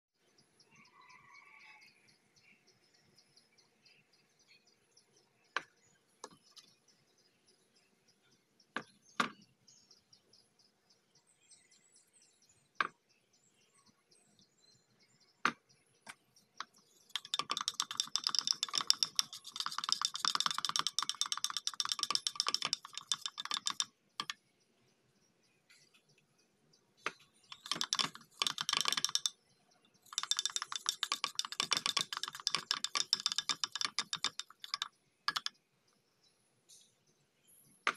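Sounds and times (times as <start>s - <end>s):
paintbrush tapping glass jar: 17.1s - 24.4s, 27.5s - 29.4s, 30.0s - 35.5s
scattered knocks: 17.2s - 24.3s, 27.5s - 29.3s, 30.1s - 35.5s.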